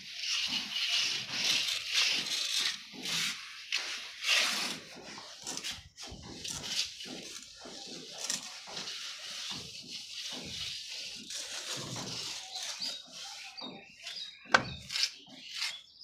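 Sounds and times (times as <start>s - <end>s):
trowel scraping wet plaster: 0.0s - 16.0s
trowel squeaks: 6.4s - 16.0s
sharp knock: 14.5s - 14.9s.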